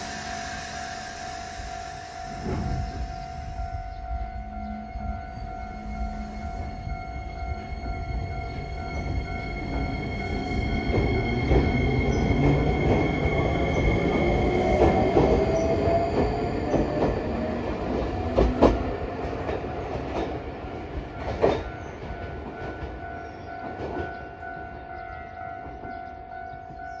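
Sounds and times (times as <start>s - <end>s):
electric train motor whine: 0.0s - 18.1s.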